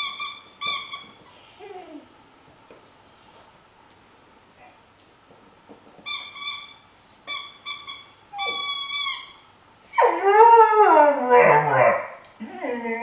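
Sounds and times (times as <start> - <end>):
puppy whining: 0.0 - 2.1, 6.1 - 13.0.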